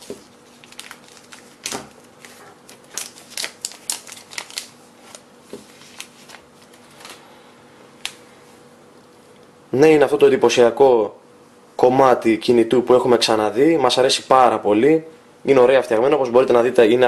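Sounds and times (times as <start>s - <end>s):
plastic film crackling: 0.0s - 7.2s
faint steady hum: 0.0s - 17.0s.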